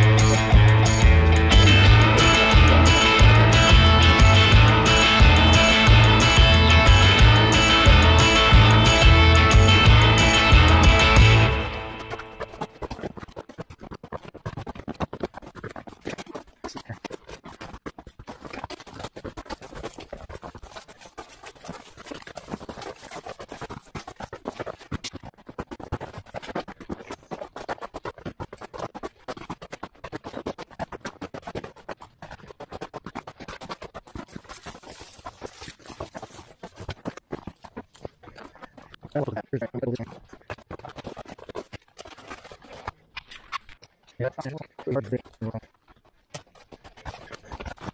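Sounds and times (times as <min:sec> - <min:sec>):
footsteps crunching on snow: 0:00.3 - 0:13.8, 0:33.8 - 0:42.9.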